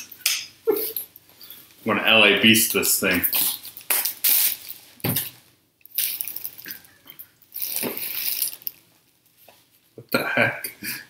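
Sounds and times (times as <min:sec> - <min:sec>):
plastic bag crinkling: 0:02.8 - 0:08.9.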